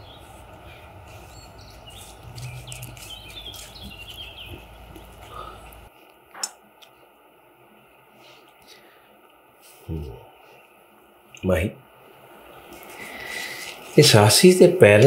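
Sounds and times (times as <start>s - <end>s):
birds chirping: 0.0s - 6.5s
low outdoor background: 0.0s - 15.0s.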